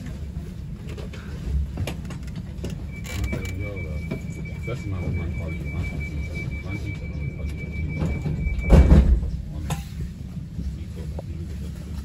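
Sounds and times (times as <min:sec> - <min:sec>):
train rumble: 0:00.0 - 0:12.0
loud thud: 0:08.7 - 0:09.4.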